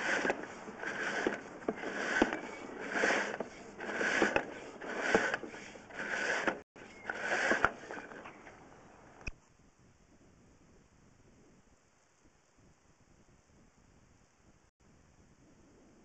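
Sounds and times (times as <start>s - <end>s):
push rod scraping in drain: 0.0s - 8.4s.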